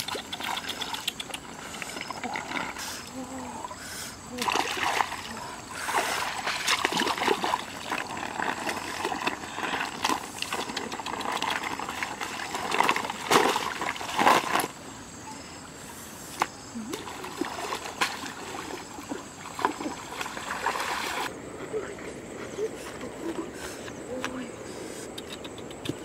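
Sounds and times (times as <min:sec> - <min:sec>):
water dribbling: 0:00.0 - 0:14.7
water splashing and sloshing: 0:00.0 - 0:15.0, 0:15.8 - 0:24.5.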